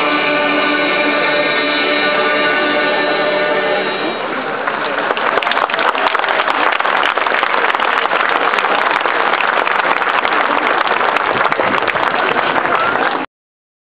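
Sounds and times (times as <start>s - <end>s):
crowd applauding: 4.4s - 13.3s.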